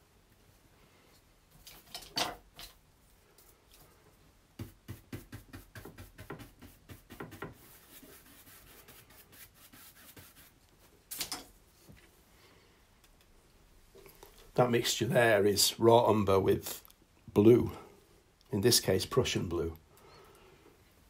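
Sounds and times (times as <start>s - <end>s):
paintbrush rubbing: 4.6s - 10.9s
brush scraping: 4.6s - 11.2s
paintbrush scratchy strokes: 4.9s - 11.0s.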